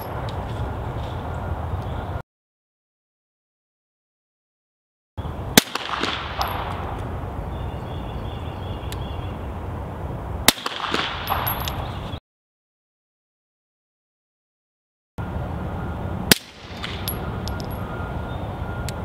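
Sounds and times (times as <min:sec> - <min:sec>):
silenced pistol shots: 0:05.6 - 0:07.1, 0:10.4 - 0:12.0, 0:16.3 - 0:17.7.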